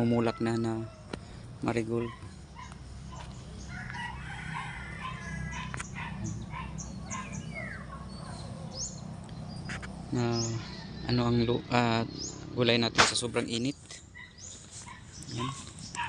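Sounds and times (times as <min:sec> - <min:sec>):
rooster crowing: 0:00.0 - 0:01.2, 0:03.6 - 0:07.2
small birds chirping: 0:00.0 - 0:16.0.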